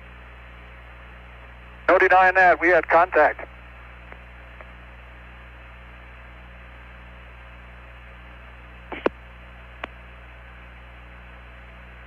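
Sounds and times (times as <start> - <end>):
radio hum and hiss: 0.0 - 12.0
sharp radio clicks: 2.7 - 4.8, 8.9 - 9.2.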